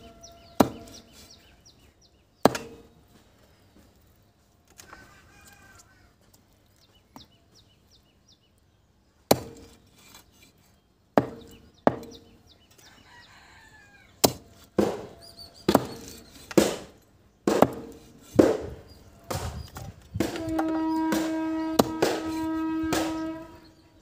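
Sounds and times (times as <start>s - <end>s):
knife chopping on wooden block: 15.7s - 16.8s.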